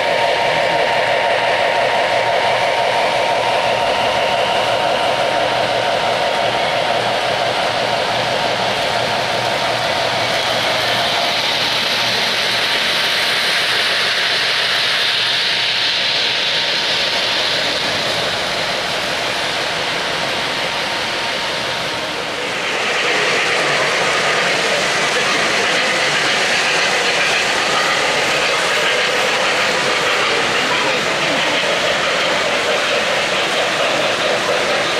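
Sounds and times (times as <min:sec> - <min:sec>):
model train wheels rolling: 0:03.6 - 0:34.9.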